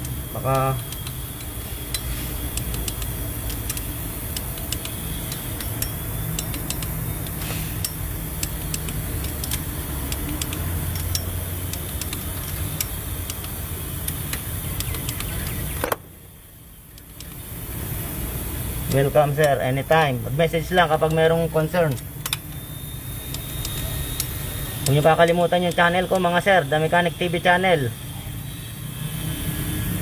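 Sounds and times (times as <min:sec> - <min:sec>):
wrench clicks: 0:00.0 - 0:16.0
vehicle engine humming: 0:00.0 - 0:27.8.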